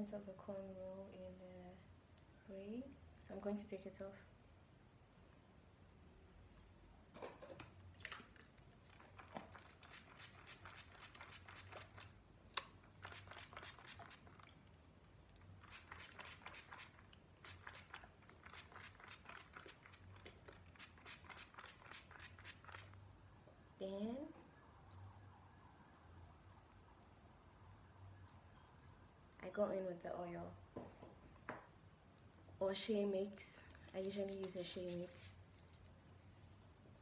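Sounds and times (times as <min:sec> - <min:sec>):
fingers rustling through braided hair: 0:08.9 - 0:14.6, 0:15.3 - 0:23.0, 0:33.0 - 0:36.2.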